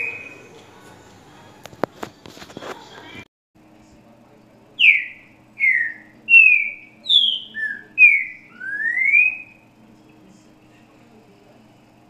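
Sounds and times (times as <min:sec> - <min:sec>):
bird singing whistled notes: 0:04.8 - 0:09.6.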